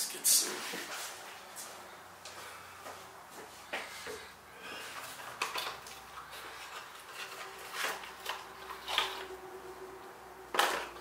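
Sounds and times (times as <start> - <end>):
cardboard box rustling: 6.3 - 9.3.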